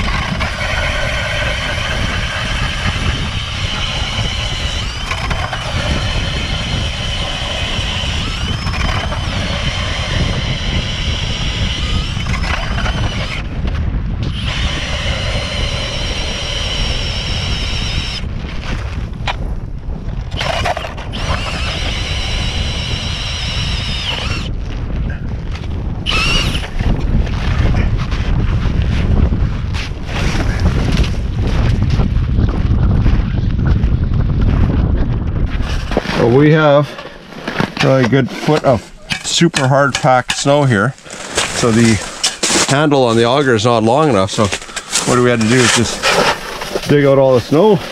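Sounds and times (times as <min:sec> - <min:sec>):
cordless drill spinning ice auger: 0:00.0 - 0:19.0, 0:20.3 - 0:24.6, 0:26.0 - 0:28.3, 0:35.6 - 0:47.9
wind rumbling on microphone: 0:00.0 - 0:47.9.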